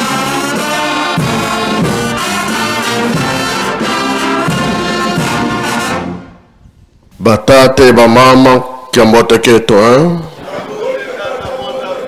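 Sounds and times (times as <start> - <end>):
brass band playing slow chords: 0.0 - 6.6.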